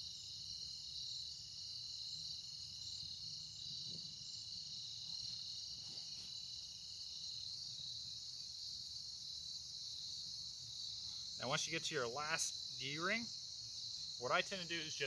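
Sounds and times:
insects chirping: 0:00.0 - 0:15.0
rope and canvas rustling: 0:05.3 - 0:06.5.

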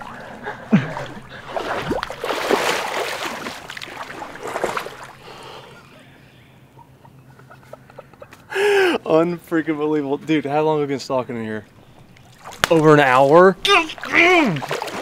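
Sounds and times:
legs splashing through swamp water: 0:00.0 - 0:05.6, 0:11.9 - 0:15.0.

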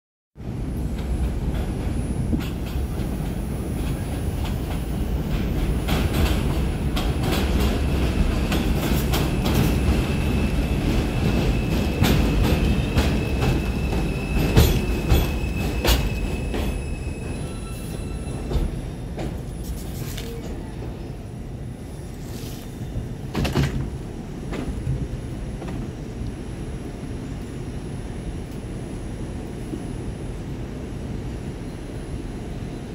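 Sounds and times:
train wheels rumbling on rails: 0:00.4 - 0:32.9
high steady brake squeal: 0:09.6 - 0:18.9.

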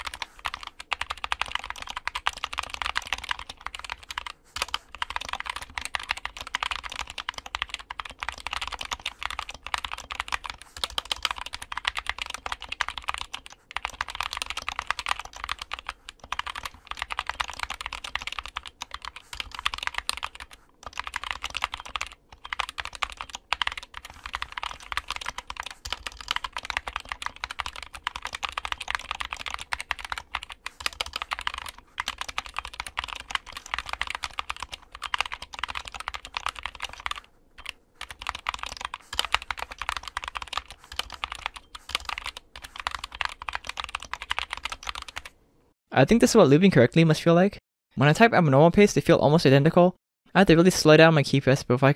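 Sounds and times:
mechanical keyboard typing: 0:00.0 - 0:45.4.

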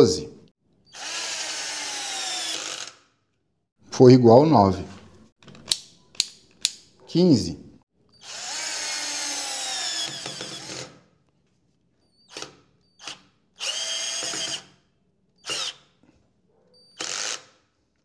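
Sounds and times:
cordless drill motor whining: 0:00.9 - 0:03.1, 0:08.2 - 0:10.9, 0:12.3 - 0:14.8, 0:15.4 - 0:15.9, 0:16.9 - 0:17.5
drill bit camming out: 0:00.9 - 0:03.1, 0:08.2 - 0:10.9, 0:12.3 - 0:14.7, 0:15.4 - 0:15.9.

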